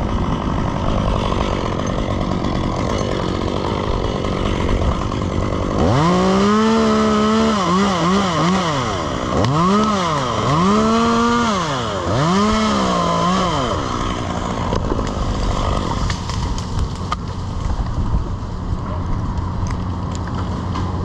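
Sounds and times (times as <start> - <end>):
chainsaw revving: 0.0 - 17.9
wind noise: 15.2 - 19.7.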